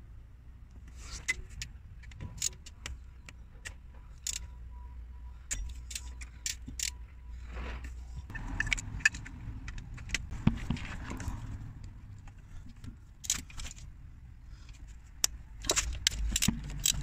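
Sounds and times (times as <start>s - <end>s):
ratchet clicking: 15.2s - 17.0s.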